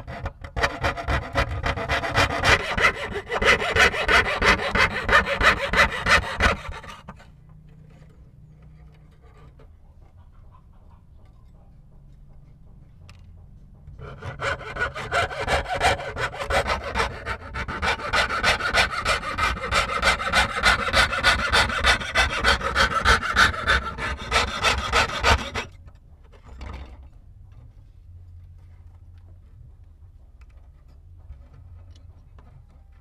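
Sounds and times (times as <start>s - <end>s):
saw cutting metal sheet: 0.0s - 7.2s, 14.0s - 25.8s.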